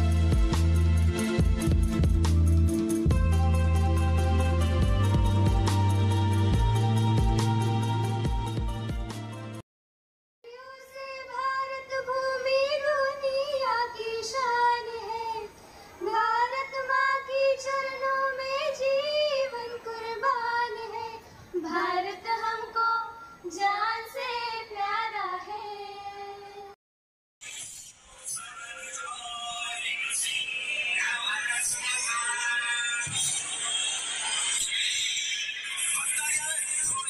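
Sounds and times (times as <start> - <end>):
women singing in unison: 10.5 - 26.8.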